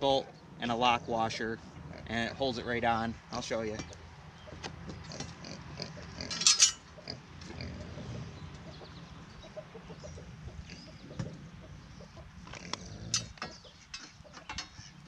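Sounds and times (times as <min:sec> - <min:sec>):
pig grunting: 0:01.8 - 0:02.4, 0:05.0 - 0:08.4, 0:10.0 - 0:11.6, 0:12.4 - 0:13.6.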